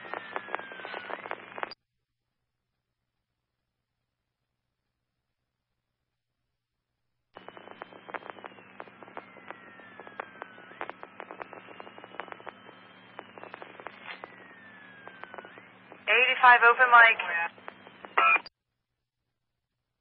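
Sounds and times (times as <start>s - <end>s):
radio static crackling: 0.0s - 1.8s, 7.4s - 18.5s
siren wailing: 7.4s - 16.0s
steady low hum: 7.4s - 18.4s.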